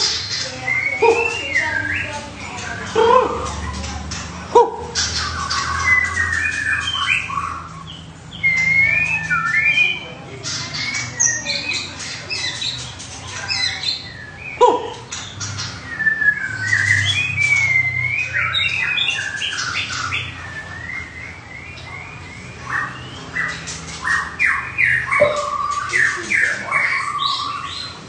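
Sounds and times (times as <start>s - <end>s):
songbirds whistling and chirping: 0.0s - 28.0s
low falling bird call: 24.9s - 27.7s.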